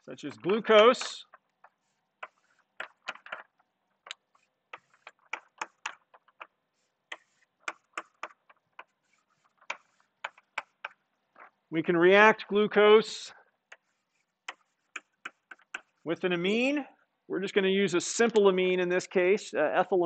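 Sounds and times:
chalk scratching strokes: 0.4s - 11.5s, 13.7s - 16.2s
chalk tapping on blackboard: 0.8s - 11.5s, 13.7s - 16.0s.

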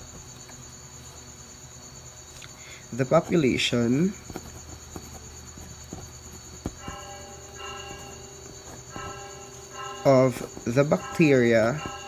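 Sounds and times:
crickets trilling: 0.0s - 12.0s
ballpoint pen writing on paper: 3.0s - 12.0s.

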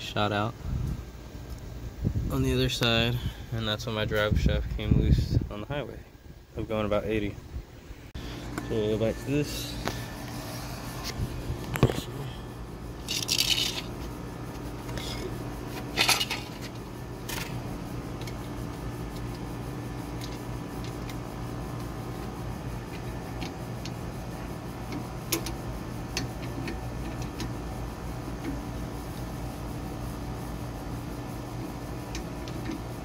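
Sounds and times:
steady low hum: 0.0s - 33.0s
metal tools clinking and scraping: 13.0s - 14.0s, 14.9s - 17.6s.

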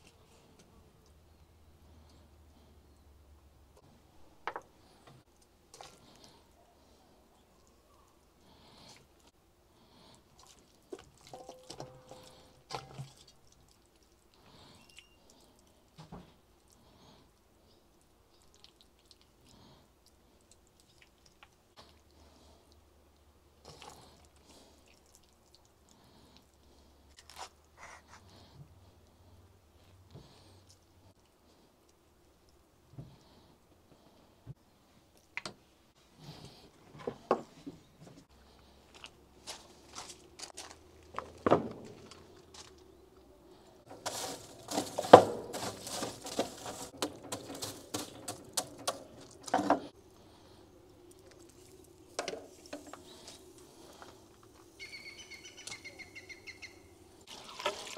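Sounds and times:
handling knocks and scuffs: 43.9s - 49.9s.

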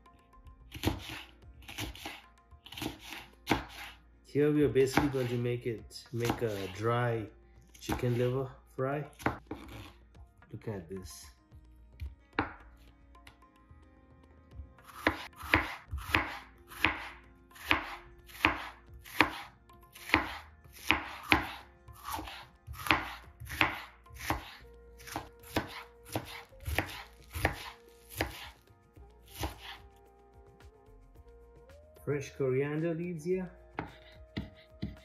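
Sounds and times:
knife chopping on cutting board: 0.7s - 4.0s, 4.8s - 5.4s, 6.2s - 7.0s, 7.8s - 8.4s, 9.1s - 10.0s, 12.0s - 12.7s, 14.8s - 28.6s, 29.3s - 29.8s, 33.8s - 35.0s.

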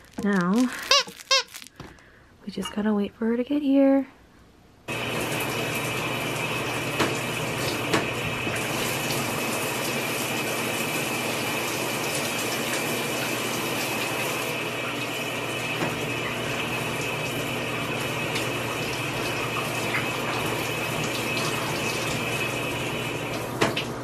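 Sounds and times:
shower water running: 4.9s - 24.0s.

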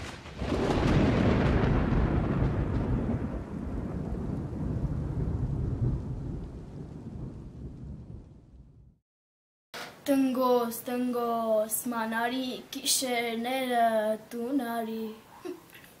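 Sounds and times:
thunderclap with low rumble: 0.0s - 9.0s.

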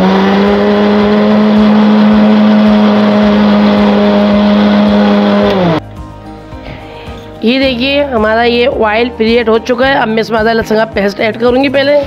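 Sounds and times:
blender motor grinding: 0.0s - 5.8s.

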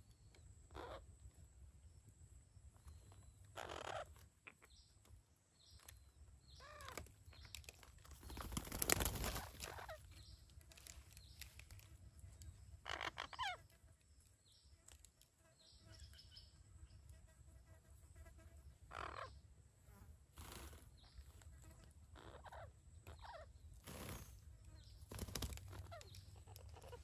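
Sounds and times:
faint high bird calls: 0.0s - 1.4s, 2.7s - 14.8s, 18.9s - 19.5s, 20.4s - 27.0s
parakeet calls: 0.7s - 1.1s, 3.5s - 4.6s, 12.8s - 13.7s, 18.9s - 19.4s, 22.2s - 23.5s, 25.7s - 27.0s.

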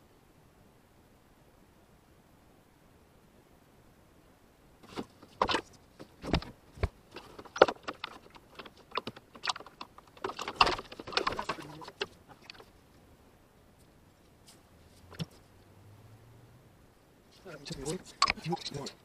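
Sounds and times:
hose clicking and rattling: 4.8s - 12.8s.

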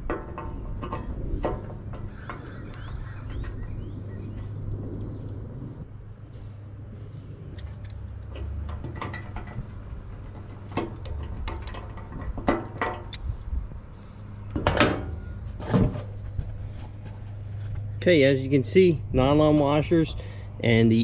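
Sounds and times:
metallic clicks and taps: 7.6s - 13.3s.

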